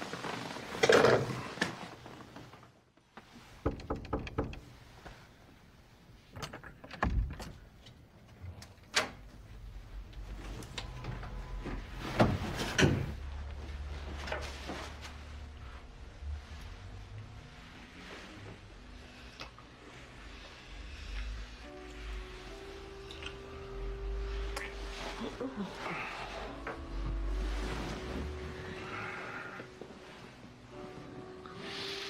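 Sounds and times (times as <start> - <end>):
door clicks and thuds: 3.6 - 4.7, 6.4 - 7.7.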